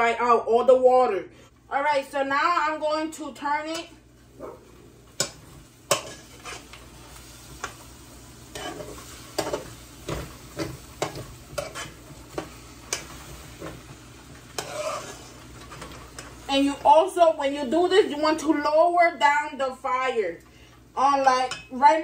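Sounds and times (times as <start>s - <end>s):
faint sizzle of rice: 2.4s - 22.0s
metal spoon scraping pot: 5.9s - 6.7s, 11.1s - 13.0s, 14.6s - 15.4s.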